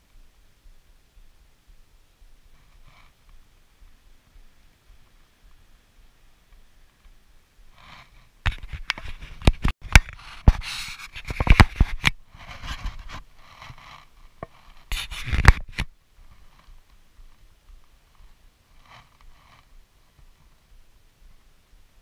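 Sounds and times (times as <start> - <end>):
hand scraping camera microphone: 2.4 - 4.1, 7.0 - 20.8.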